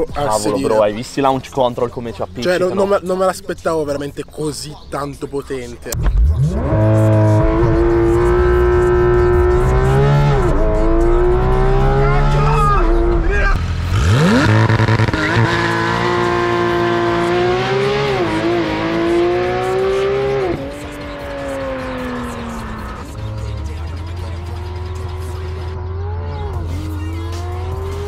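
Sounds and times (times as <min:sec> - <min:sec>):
car engine revving high: 0:06.0 - 0:28.0.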